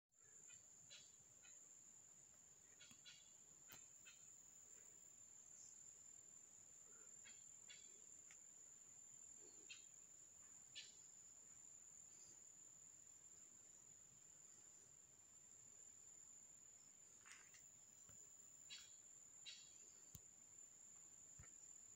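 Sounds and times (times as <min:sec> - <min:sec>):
faint high-pitched insect trill: 0:00.2 - 0:21.9
soft ticks and rustles: 0:07.7 - 0:08.5, 0:17.1 - 0:20.3.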